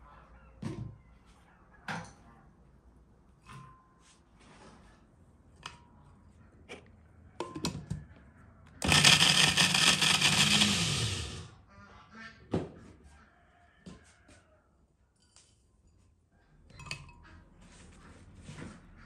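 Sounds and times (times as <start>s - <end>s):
blender grinding bread: 8.8s - 11.5s.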